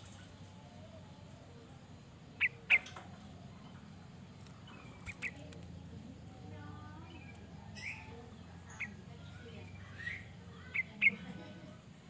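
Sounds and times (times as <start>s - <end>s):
bird chirping: 0.0s - 11.7s
low steady hum: 0.0s - 12.0s.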